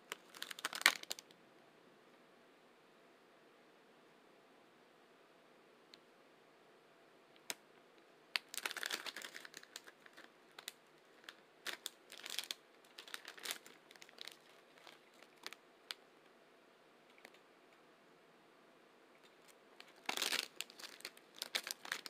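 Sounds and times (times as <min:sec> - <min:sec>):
foil crinkling and rustling: 0:00.1 - 0:01.2, 0:08.4 - 0:15.6, 0:19.3 - 0:22.0.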